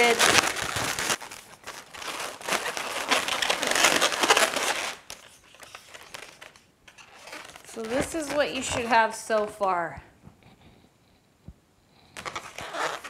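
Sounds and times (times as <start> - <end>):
balloons rubbing and rustling: 0.0 - 9.6, 12.2 - 13.0.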